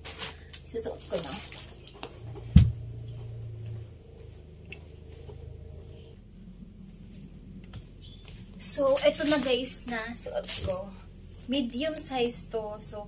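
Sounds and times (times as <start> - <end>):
low hum: 0.0 - 13.0
thump on wooden floor: 2.5 - 2.8.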